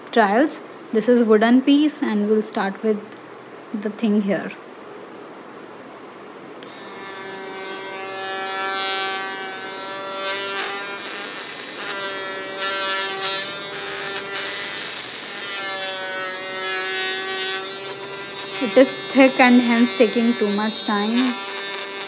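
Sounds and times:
mini electric drill whining into wood: 6.6s - 22.0s.

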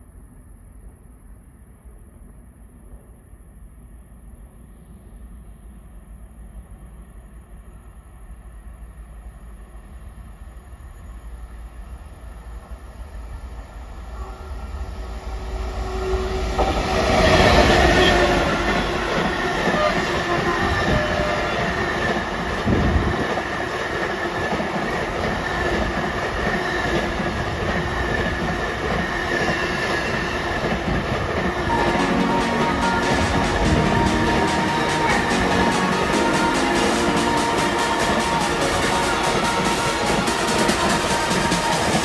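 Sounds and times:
freight train passing: 0.0s - 42.0s
thin high tone: 31.7s - 42.0s.

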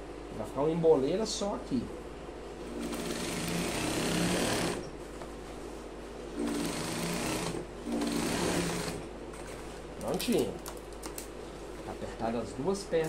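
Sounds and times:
industrial sewing machine stitching: 2.7s - 4.9s, 6.4s - 9.0s.

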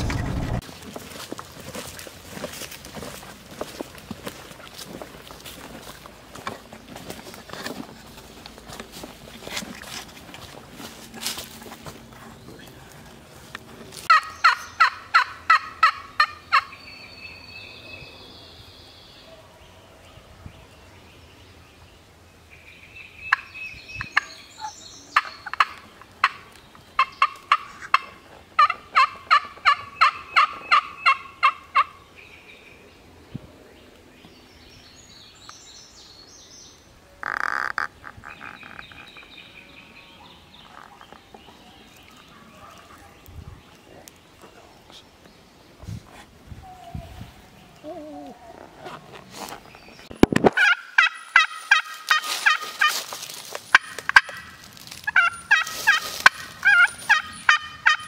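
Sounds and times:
turkey call yelps: 50.6s - 53.0s, 53.7s - 58.0s.

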